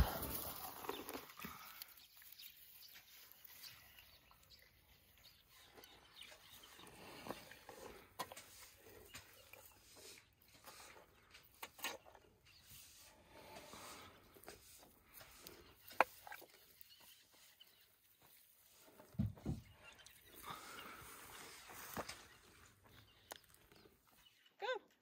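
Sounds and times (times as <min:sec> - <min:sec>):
grass rustling and crackling: 0:00.0 - 0:10.0, 0:19.9 - 0:23.4
elephant chewing: 0:00.0 - 0:24.1.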